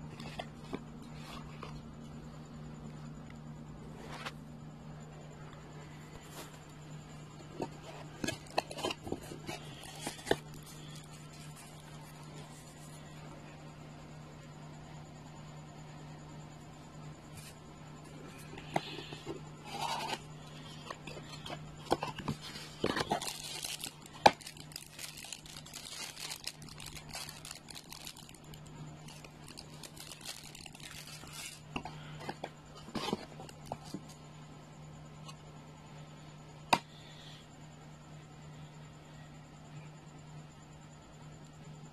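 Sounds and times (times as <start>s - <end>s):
plastic bag crinkling: 8.1s - 12.7s, 21.0s - 31.7s.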